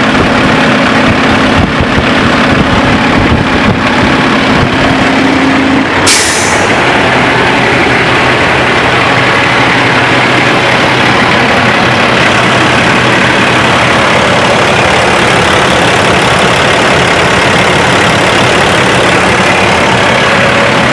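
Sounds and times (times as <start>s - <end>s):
diesel truck engine idling: 0.0s - 20.9s
air hiss: 6.0s - 6.8s.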